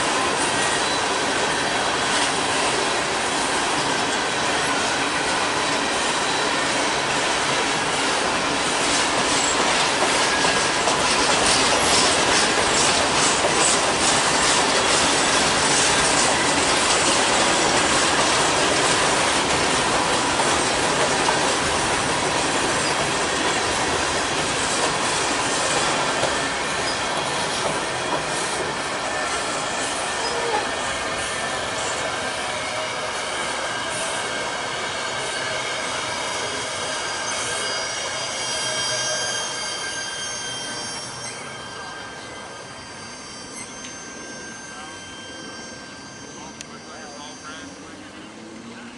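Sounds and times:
train wheels rumbling on rails: 0:00.0 - 0:48.9
thin wheel squeal: 0:00.6 - 0:01.1, 0:28.3 - 0:34.5, 0:35.1 - 0:48.1.

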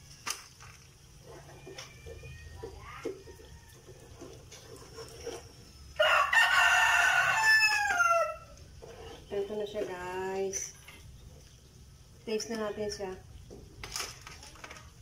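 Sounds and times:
spatula scraping frying pan: 0:03.4 - 0:06.0, 0:08.5 - 0:10.0
rooster crowing: 0:06.0 - 0:08.6.

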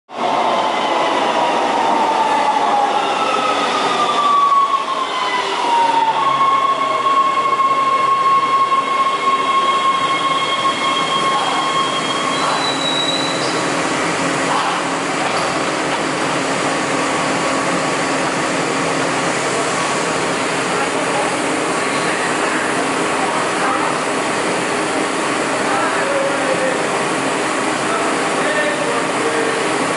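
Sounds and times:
subway train braking whine: 0:00.1 - 0:29.9
stopped train humming: 0:00.2 - 0:29.9
train brakes squealing: 0:06.2 - 0:13.7.

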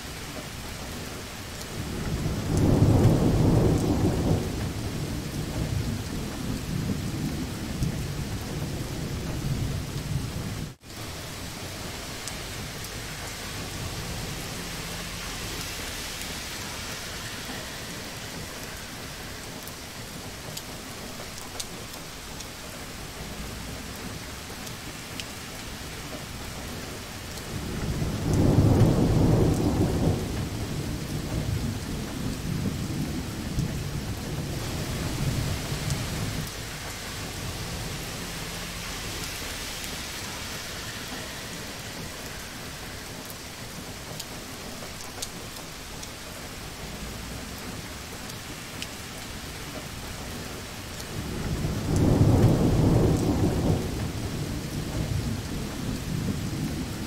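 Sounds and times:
heavy rain: 0:00.0 - 0:57.0
rolling thunder: 0:00.2 - 0:57.0.

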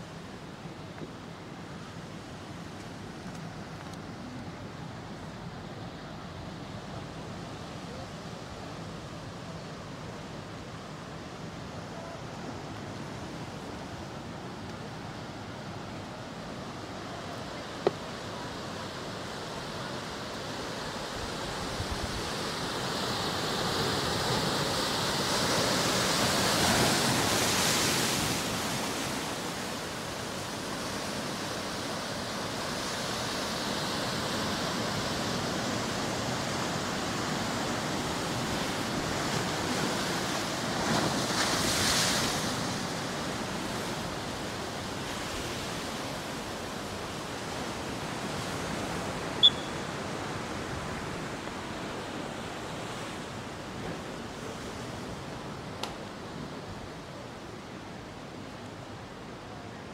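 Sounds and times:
ocean waves breaking: 0:12.6 - 0:56.7.

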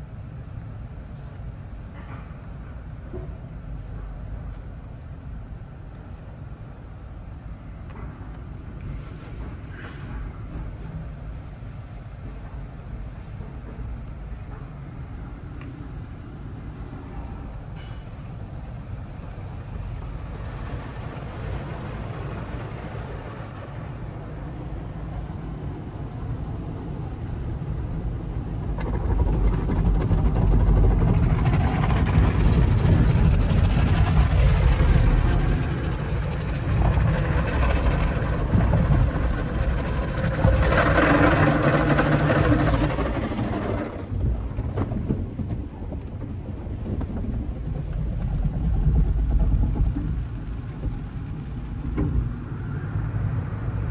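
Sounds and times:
water spraying on car: 0:18.8 - 0:44.1.

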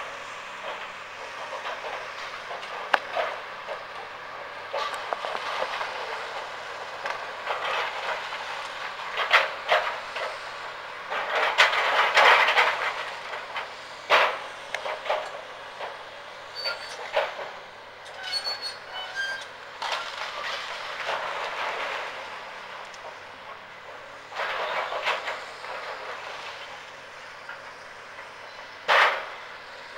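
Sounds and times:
high squeaks: 0:16.5 - 0:17.0, 0:18.1 - 0:19.5.

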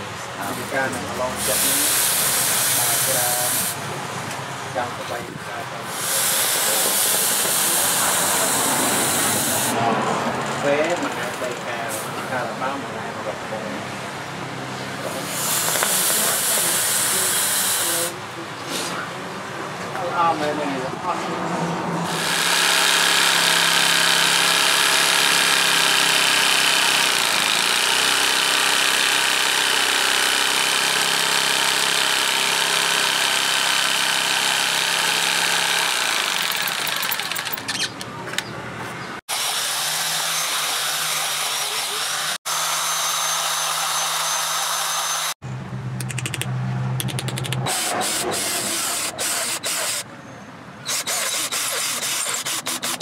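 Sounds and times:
jigsaw cutting wood: 0:01.4 - 0:03.8, 0:05.9 - 0:09.7, 0:15.2 - 0:18.1, 0:22.1 - 0:37.7, 0:39.3 - 0:45.4, 0:47.7 - 0:50.0, 0:50.9 - 0:53.0
power drill boring into wood: 0:01.4 - 0:03.8, 0:05.9 - 0:09.7, 0:15.3 - 0:18.1, 0:22.1 - 0:37.9, 0:39.3 - 0:45.4, 0:47.7 - 0:50.0, 0:50.9 - 0:53.0.

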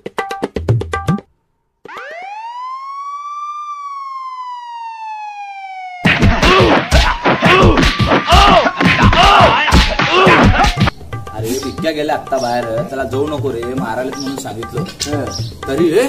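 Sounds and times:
siren wailing: 0:01.8 - 0:07.4.

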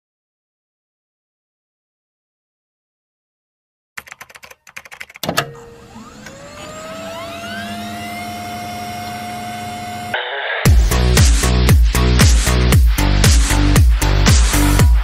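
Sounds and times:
rising electronic whine: 0:05.5 - 0:10.4
electronic dance beat: 0:10.7 - 0:15.0.

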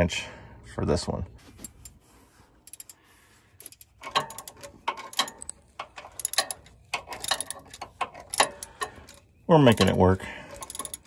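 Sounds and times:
socket ratchet clicking: 0:03.6 - 0:11.0.

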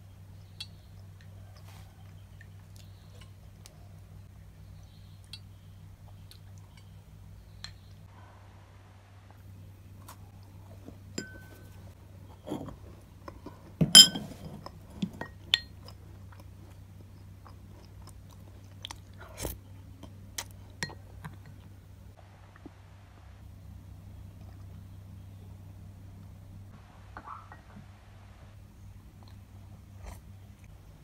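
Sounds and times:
steady low hum: 0:00.0 - 0:31.0
cookie being chewed: 0:10.0 - 0:21.8, 0:29.0 - 0:30.7
glass tableware clinking: 0:11.2 - 0:11.8, 0:13.8 - 0:14.5.

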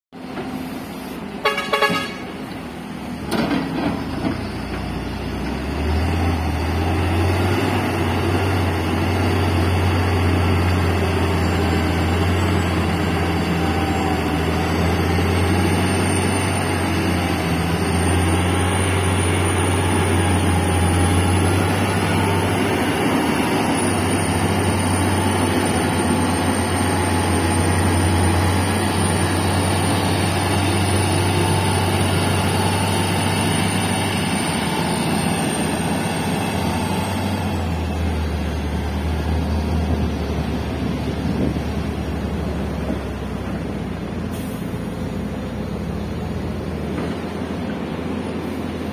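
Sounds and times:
diesel truck engine droning: 0:00.2 - 0:48.9
horn toot: 0:01.4 - 0:02.4.

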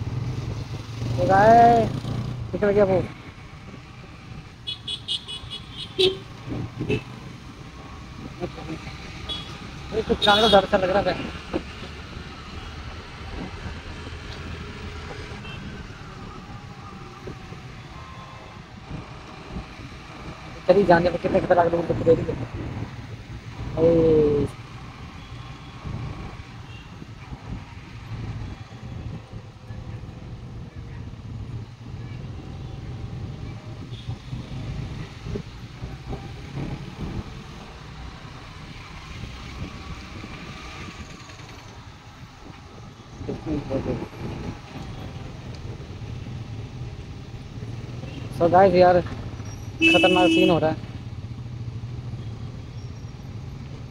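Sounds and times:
tyres on road: 0:00.0 - 0:53.9
wind noise on microphone: 0:06.4 - 0:08.4, 0:21.3 - 0:24.4, 0:25.8 - 0:47.9.

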